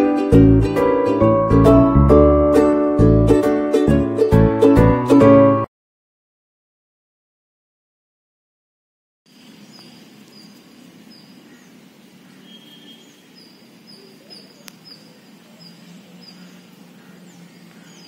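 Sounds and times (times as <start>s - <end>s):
bird chirping: 9.3s - 18.0s.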